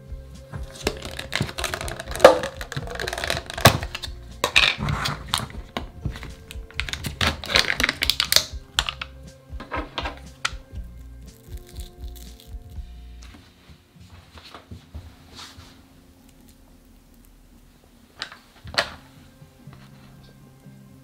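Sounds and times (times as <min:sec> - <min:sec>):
plastic crinkling: 0:00.6 - 0:09.1.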